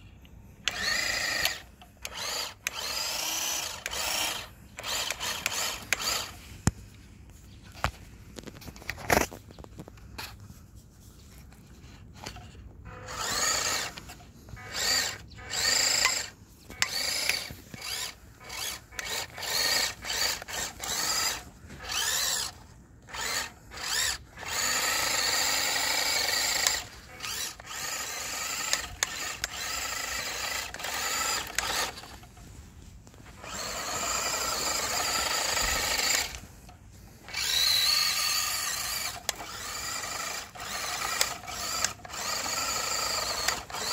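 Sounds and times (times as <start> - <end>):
electric motor whining: 0.6 - 6.5, 12.1 - 32.4, 33.1 - 43.9
wheels spinning in snow: 0.6 - 10.4, 11.1 - 43.9.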